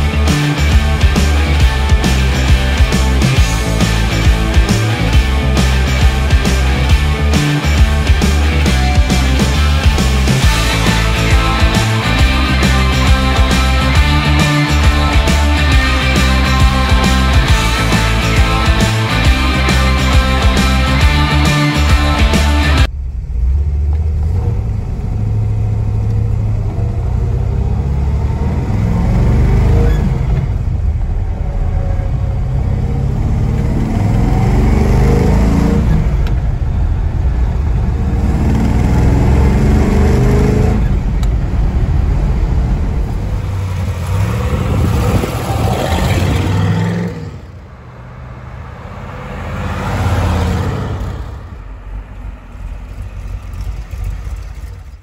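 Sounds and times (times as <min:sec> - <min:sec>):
car engine accelerating through gears: 0:00.0 - 0:55.0
car driving past: 0:22.8 - 0:55.0.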